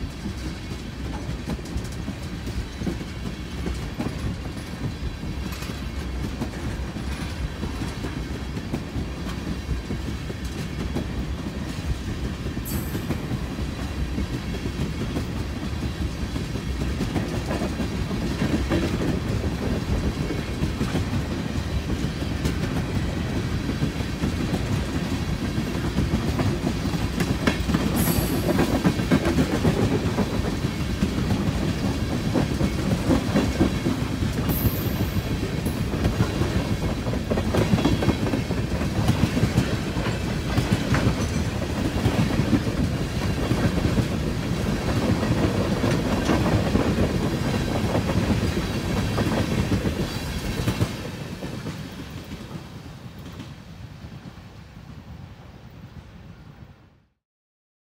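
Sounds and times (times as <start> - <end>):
freight train rumbling past: 0.0 - 56.9.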